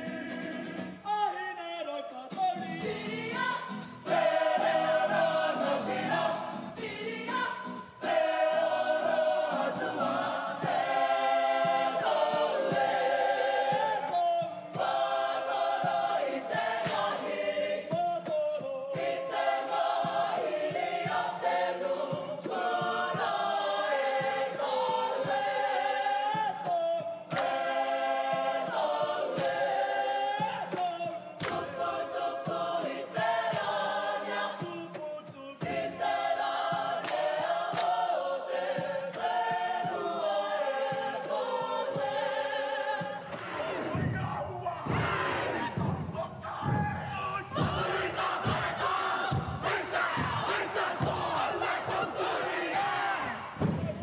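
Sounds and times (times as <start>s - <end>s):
group singing in chorus: 0.0s - 54.0s.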